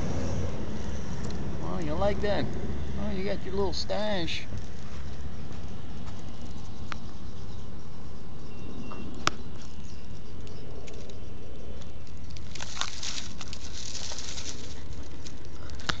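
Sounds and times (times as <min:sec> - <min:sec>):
steady low rumble: 0:00.0 - 0:16.0
plastic bag crinkling and rustling: 0:12.1 - 0:16.0.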